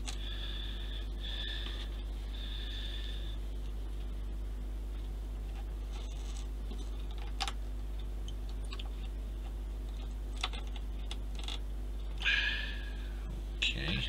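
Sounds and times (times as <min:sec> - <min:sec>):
steady low hum: 0:00.0 - 0:14.0
faint scratches and ticks: 0:04.9 - 0:12.2.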